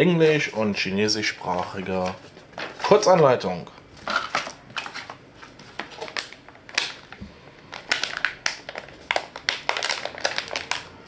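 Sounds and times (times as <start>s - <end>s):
plastic bag crinkling: 4.0s - 11.0s.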